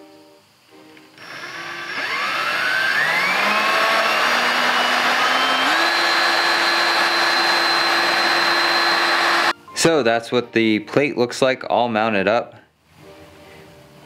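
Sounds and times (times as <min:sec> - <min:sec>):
power drill whine: 0:01.2 - 0:09.5.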